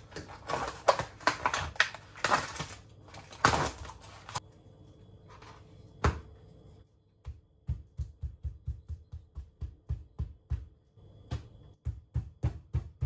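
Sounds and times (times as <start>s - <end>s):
plastic packaging crackling: 0.0s - 4.4s
scissors cutting plastic film: 0.0s - 4.4s.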